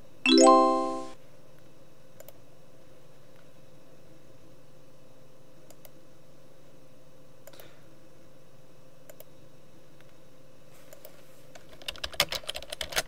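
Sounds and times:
low hum of computer: 0.0s - 13.0s
computer mouse clicks: 2.2s - 2.4s, 5.6s - 6.0s, 7.4s - 7.7s, 9.1s - 9.3s, 10.9s - 13.0s.

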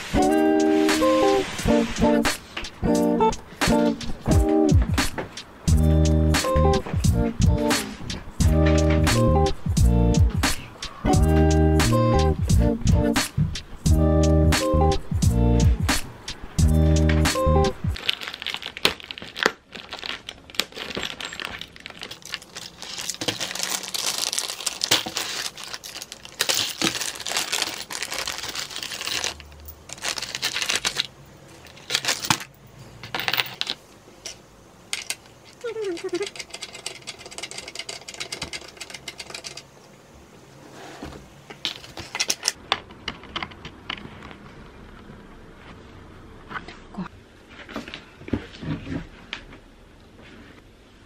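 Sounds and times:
plastic film crinkling and tearing: 18.0s - 32.5s
bag of screws rustling and clinking: 18.0s - 34.4s.

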